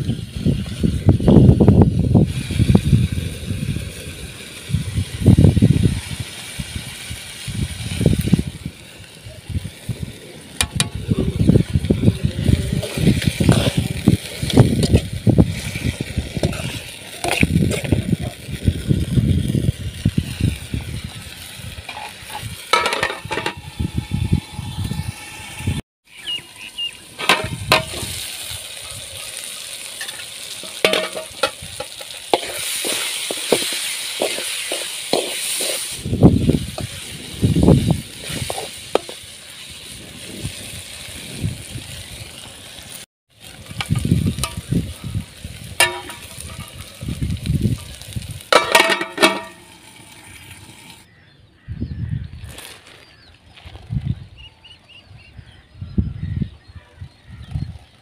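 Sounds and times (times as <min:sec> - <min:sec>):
tomatoes sizzling in a pan: 0:00.0 - 0:51.7
spoon scraping and clinking on pan: 0:30.0 - 0:35.9, 0:45.8 - 0:46.8.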